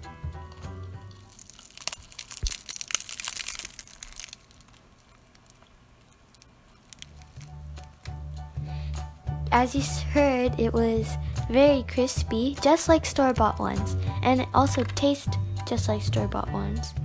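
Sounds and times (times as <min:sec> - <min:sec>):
fried pastry shell crackling: 0:01.1 - 0:08.6.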